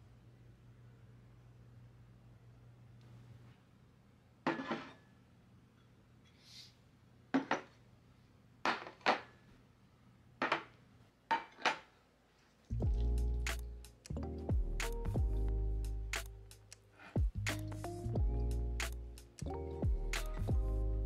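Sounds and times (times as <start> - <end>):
dishes set on wooden table: 4.4 - 5.2, 7.3 - 7.8, 8.6 - 9.5, 10.4 - 12.0.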